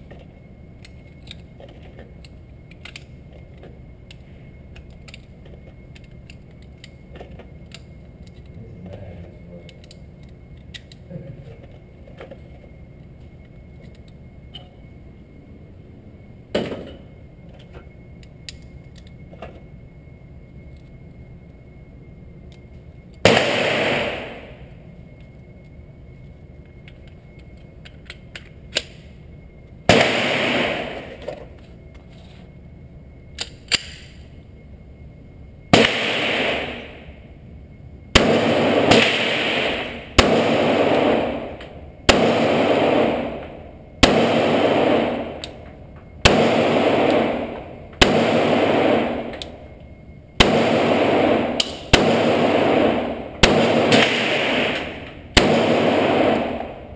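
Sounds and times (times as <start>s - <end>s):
gun handling clicks: 0.8s - 1.5s, 2.2s - 8.6s, 9.7s - 11.1s, 26.8s - 29.1s, 33.4s - 34.2s
pistol shots with echo: 23.2s - 24.7s, 29.9s - 31.2s, 35.7s - 37.1s, 38.2s - 45.6s, 46.2s - 49.6s, 50.4s - 56.9s.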